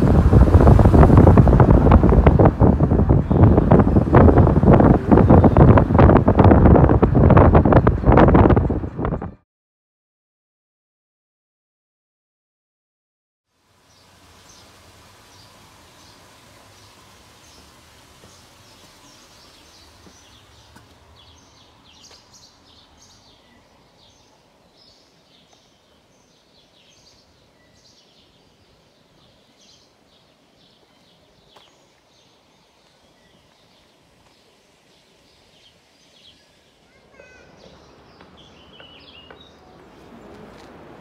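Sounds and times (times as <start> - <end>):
small birds chirping: 0.6 - 6.5, 13.9 - 40.7
low background noise: 13.5 - 41.0.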